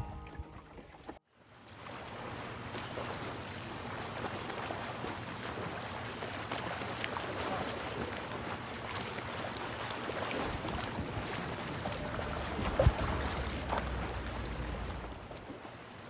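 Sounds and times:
guitar tune: 0:00.0 - 0:00.9
water lapping: 0:00.4 - 0:16.0
faint low hum: 0:02.8 - 0:15.6
wind on microphone: 0:10.3 - 0:15.4.

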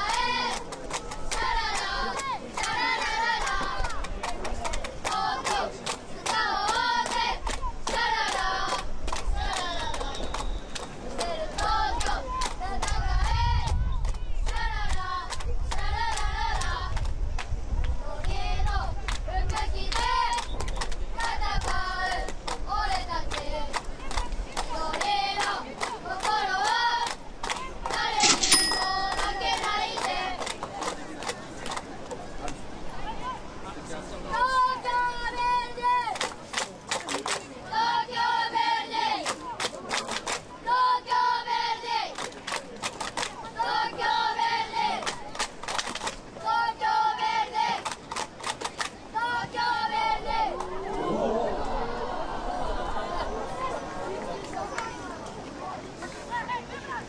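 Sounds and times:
hand claps: 0:00.1 - 0:17.1, 0:36.1 - 0:37.4, 0:39.2 - 0:40.4, 0:42.2 - 0:43.3, 0:45.0 - 0:46.2
spectators chanting: 0:37.7 - 0:39.3, 0:43.5 - 0:45.0, 0:49.2 - 0:54.4.

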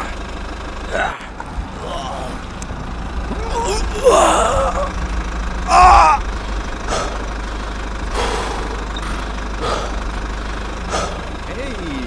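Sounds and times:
low motor hum: 0:00.0 - 0:12.0
person shouting: 0:00.9 - 0:02.4, 0:03.3 - 0:05.0, 0:05.7 - 0:06.3.

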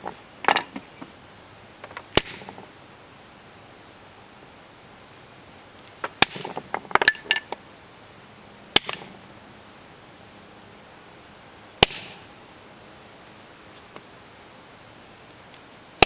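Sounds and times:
sledgehammer striking axe head: 0:02.1 - 0:02.5, 0:06.0 - 0:07.3, 0:08.8 - 0:09.1, 0:11.8 - 0:12.2.

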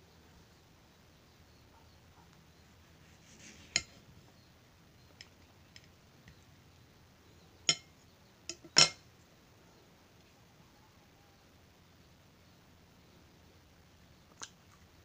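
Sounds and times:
knife clinking on ceramic plate: 0:07.7 - 0:07.9, 0:08.5 - 0:09.0.

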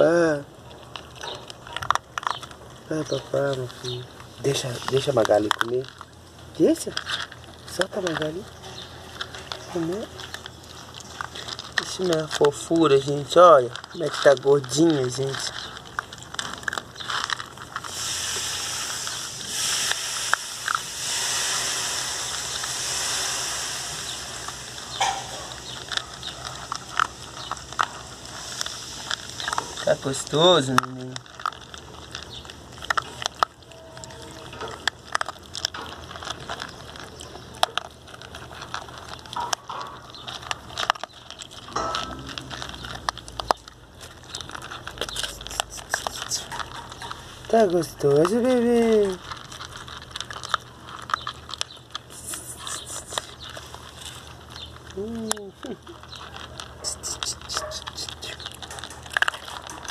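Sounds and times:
puppies crunching kibble: 0:00.0 - 0:59.9
steady hiss: 0:17.9 - 0:25.9.

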